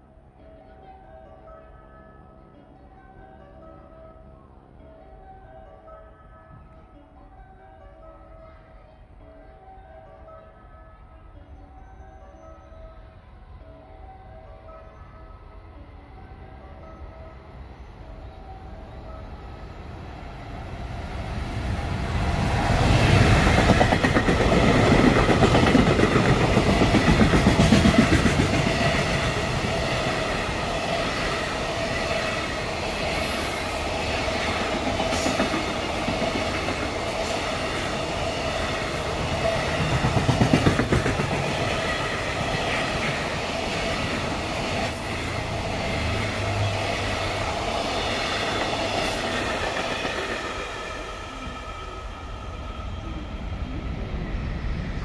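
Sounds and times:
electric locomotive passing: 0.0 - 55.0
train wheels rumbling on rails: 19.0 - 55.0.

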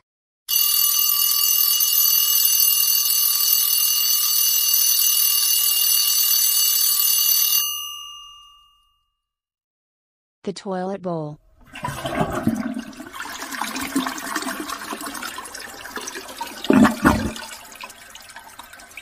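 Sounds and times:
alarm clock bell ringing: 0.5 - 9.1.

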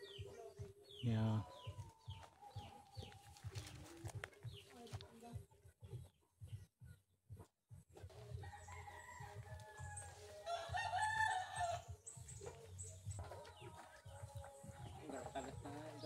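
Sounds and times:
rooster crowing: 8.4 - 11.9.

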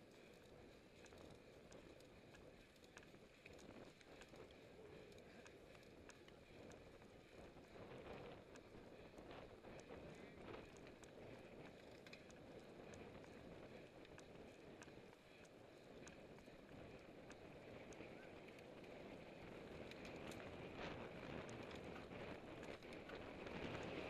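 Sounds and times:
bike tyre and drivetrain noise: 0.0 - 24.0
faint small clicks: 0.1 - 24.0
wind on microphone: 16.0 - 24.0.

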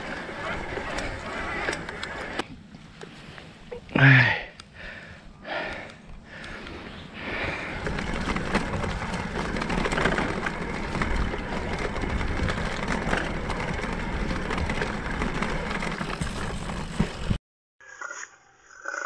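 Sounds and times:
bike rattling over bumps: 0.0 - 3.4, 4.8 - 17.4
tyres rolling on turf: 0.0 - 3.6, 6.5 - 17.4.

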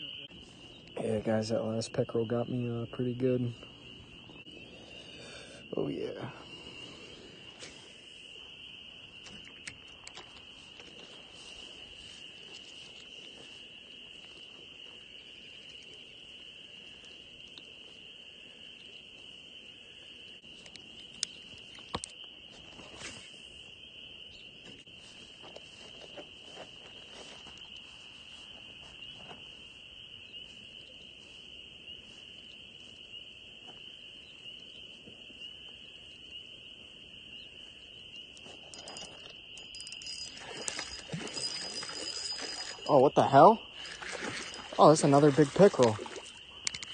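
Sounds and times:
sharp clicks: 46.6 - 46.9.

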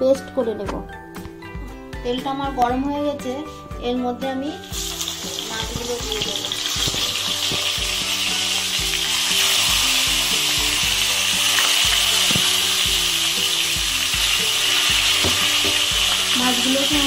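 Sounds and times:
fish sizzling in oil: 4.6 - 17.0.

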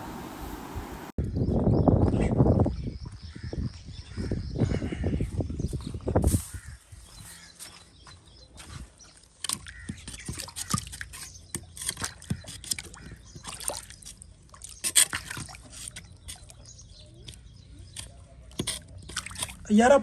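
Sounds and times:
water sloshing: 8.7 - 20.0
metal blade scraping wet mud: 9.3 - 19.6.

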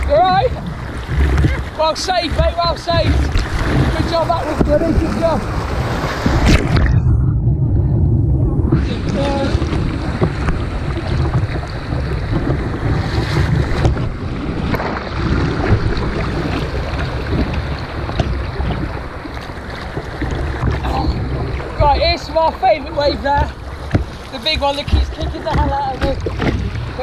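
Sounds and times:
paddle splashes: 0.0 - 7.0, 8.6 - 27.0
whitewater rushing: 0.0 - 7.0, 8.7 - 27.0
wind buffeting microphone: 0.0 - 27.0.

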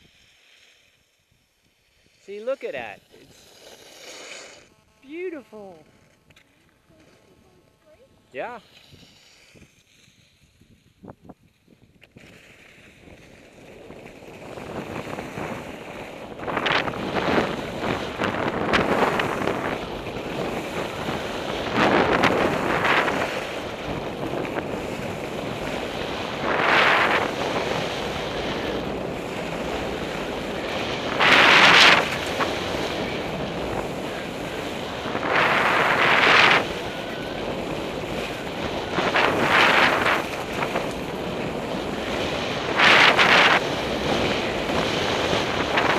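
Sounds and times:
skis hissing on snow: 0.0 - 45.9
wind rushing over microphone: 8.3 - 45.9.

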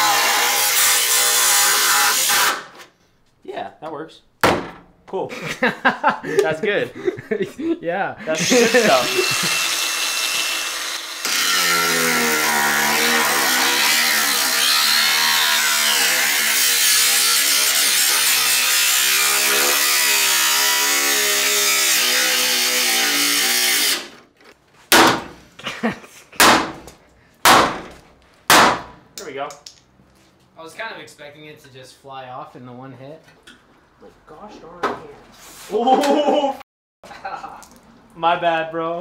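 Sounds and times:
cordless power tool motor: 8.4 - 14.8.

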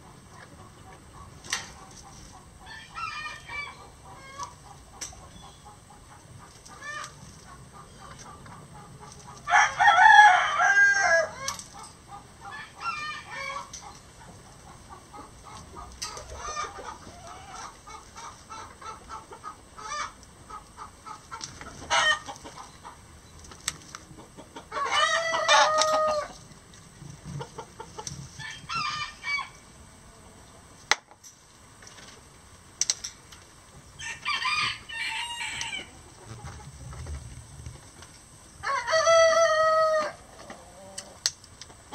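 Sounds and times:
roosters crowing: 2.6 - 4.8, 8.3 - 14.0, 15.1 - 19.0, 21.8 - 22.4, 24.6 - 26.4, 28.3 - 29.8, 33.9 - 36.4, 38.4 - 41.2.

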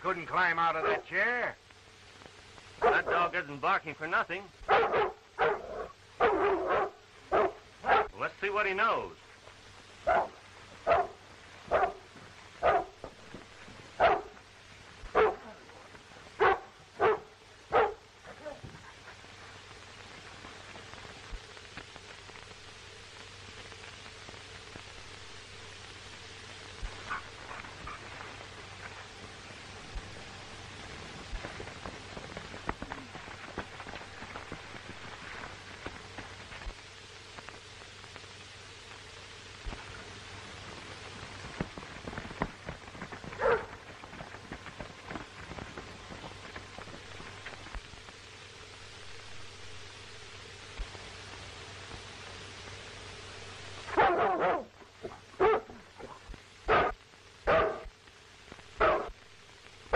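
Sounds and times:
crackles and clicks: 0.0 - 59.9
film soundtrack hiss: 0.0 - 59.9
low hum: 0.0 - 59.9
dog barking: 0.8 - 1.0, 2.8 - 3.3, 4.7 - 8.2, 10.1 - 13.0, 14.0 - 14.4, 15.1 - 15.6, 16.4 - 18.0, 43.4 - 43.7, 53.9 - 55.8, 56.6 - 57.9, 58.8 - 59.1.

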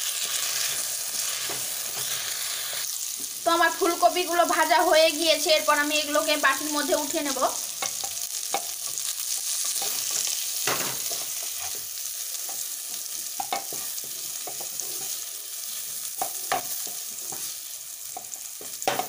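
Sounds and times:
frying in hot oil sizzling: 0.0 - 19.0.

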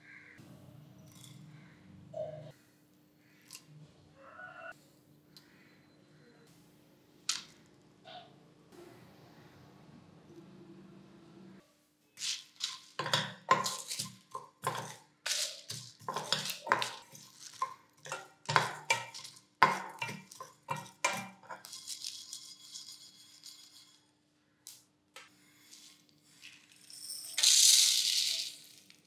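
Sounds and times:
wooden spatula scraping spices in pan: 12.2 - 24.0.

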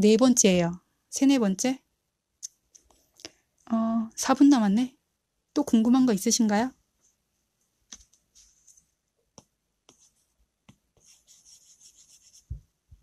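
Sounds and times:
stylus scratchy rubbing: 11.0 - 12.6.

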